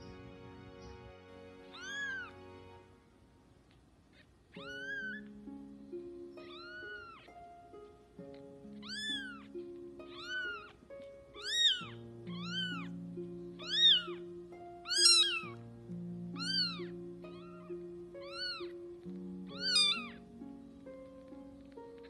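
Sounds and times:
soft background music: 0.0s - 22.0s
kitten meowing: 1.8s - 2.4s, 4.1s - 5.3s, 6.4s - 7.3s, 8.8s - 10.8s, 11.4s - 12.9s, 13.6s - 14.2s, 14.8s - 15.6s, 16.3s - 18.8s, 19.5s - 20.2s.

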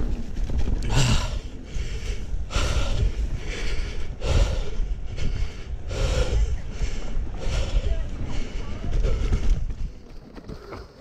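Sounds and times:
bike rolling over dirt: 0.0s - 4.1s, 6.6s - 11.0s
heavy labored breathing: 0.8s - 11.0s.

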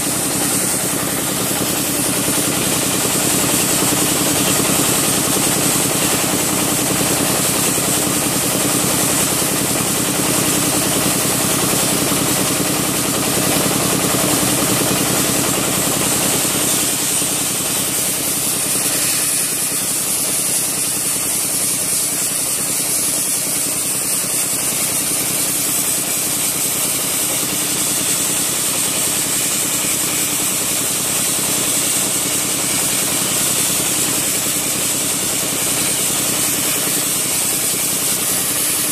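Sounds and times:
hiss of air and wet abrasive: 0.0s - 5.8s, 16.1s - 30.6s, 31.2s - 38.9s
machine drone: 0.0s - 20.8s.

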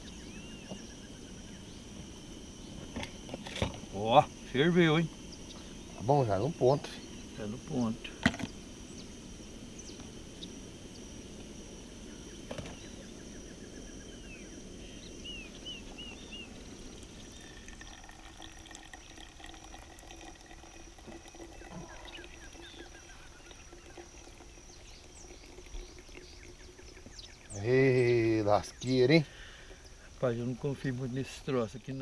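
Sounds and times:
water pouring into coffee filter: 16.8s - 28.0s.

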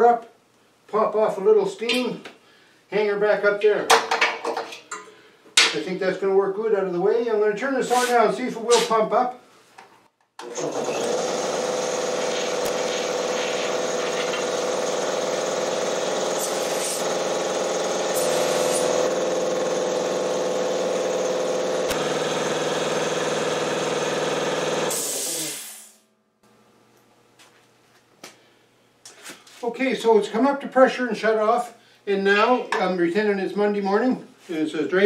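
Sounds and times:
compressor unloader hiss: 7.8s - 8.9s, 11.9s - 26.0s
air compressor running: 10.4s - 26.1s.

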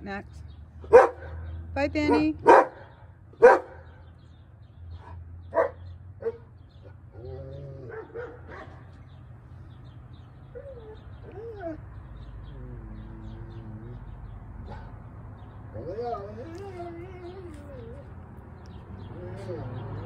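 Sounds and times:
dog barking: 0.9s - 1.5s, 2.1s - 4.0s, 5.5s - 6.5s, 7.9s - 8.9s.

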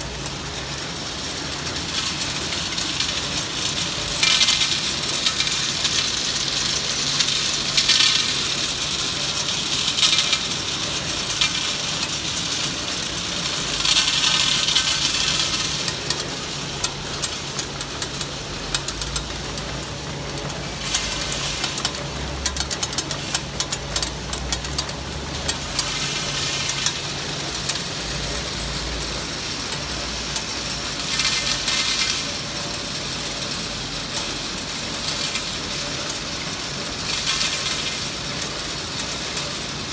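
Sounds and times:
candies clicking and clinking: 1.8s - 29.2s.

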